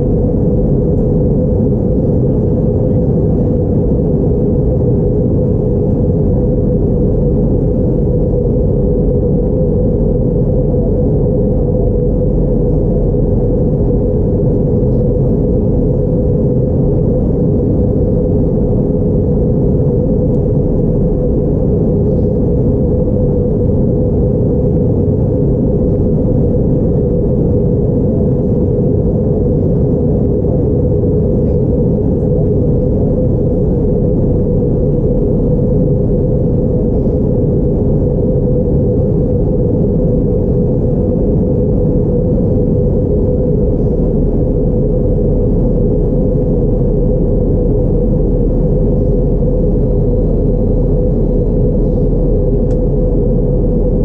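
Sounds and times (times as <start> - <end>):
airplane cabin engine and airflow rush: 0.0 - 54.0.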